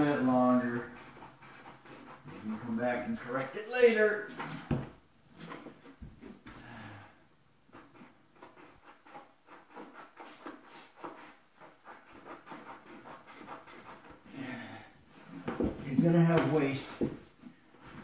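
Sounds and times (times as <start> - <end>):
scratchy rubbing of vinyl flooring: 0.0 - 6.6, 7.7 - 14.4, 15.1 - 18.0.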